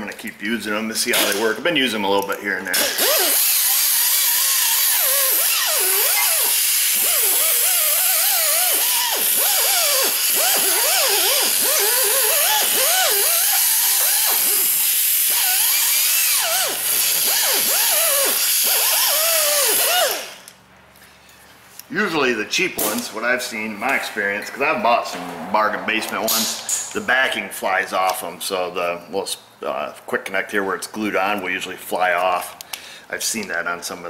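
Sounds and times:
air grinder whine: 0:02.7 - 0:20.5.

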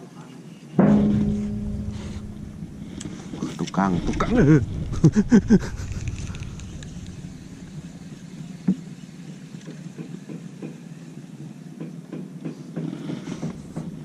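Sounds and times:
sharp knock: 0:00.8 - 0:08.8.

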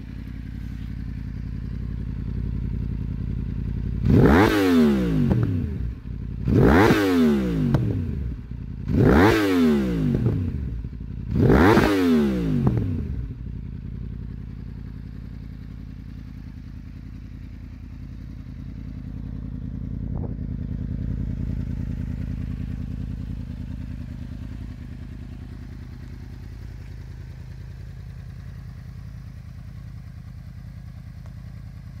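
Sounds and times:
motorcycle engine idling: 0:00.0 - 0:32.0
motorcycle engine revving: 0:00.0 - 0:32.0.

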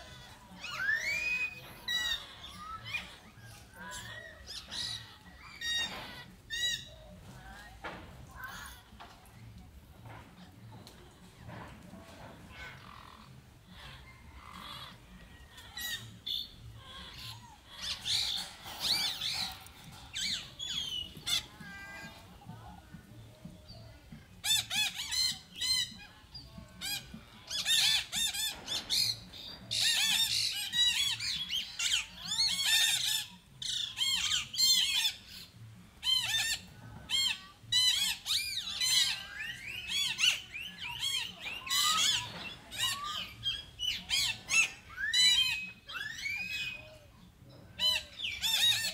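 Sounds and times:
monkeys squealing: 0:00.0 - 0:06.9, 0:15.6 - 0:22.2, 0:26.8 - 0:46.9, 0:47.8 - 0:48.9.

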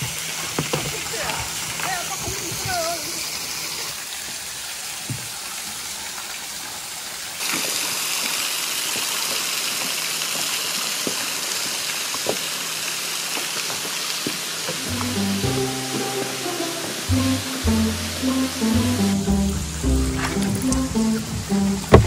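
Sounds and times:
water rushing from small waterfall: 0:00.0 - 0:22.0
acoustic guitar music: 0:14.8 - 0:22.0.

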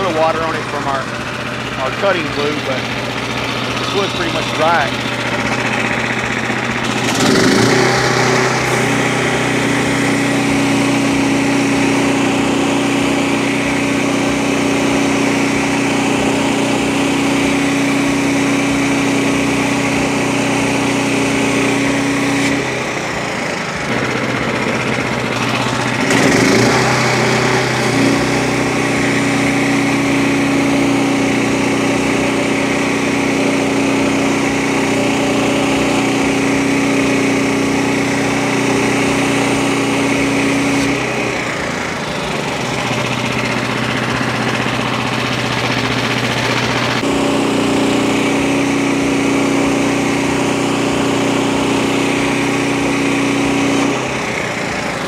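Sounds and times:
rising whine: 0:00.0 - 0:55.0
sawmill engine under load: 0:00.0 - 0:55.0
band blade sawing wood: 0:03.6 - 0:06.2, 0:06.8 - 0:23.0, 0:23.9 - 0:41.6.

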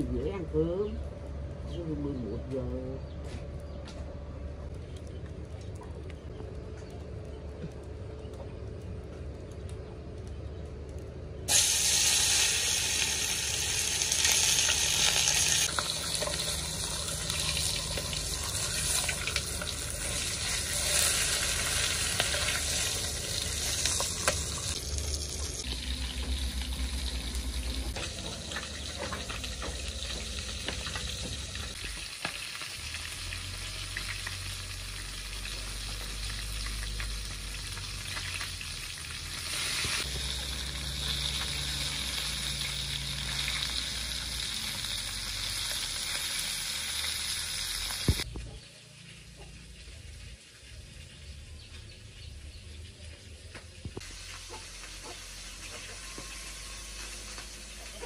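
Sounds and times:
fish sizzling in hot oil: 0:11.5 - 0:48.3, 0:54.0 - 0:58.0.

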